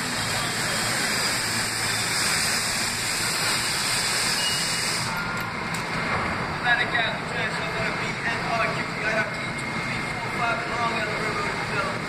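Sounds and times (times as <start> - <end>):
high brake hiss: 0.0 - 5.4
train wheels and brakes rushing: 0.0 - 6.9.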